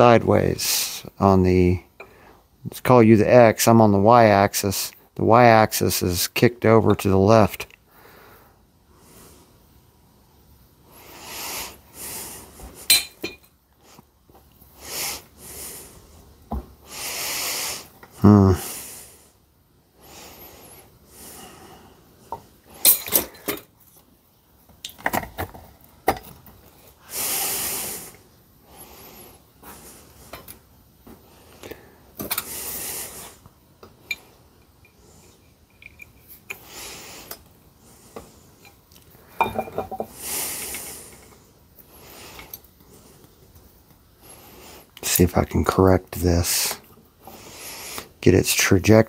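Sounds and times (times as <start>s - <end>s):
hissy breaths: 2.0s - 2.6s, 7.8s - 9.8s, 10.6s - 23.7s, 26.6s - 45.2s, 46.5s - 48.2s
metal chains clinking: 35.6s - 36.3s.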